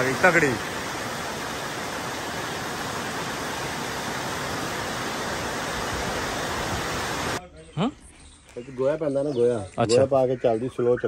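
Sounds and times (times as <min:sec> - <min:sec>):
heavy rain pouring: 0:00.0 - 0:07.4.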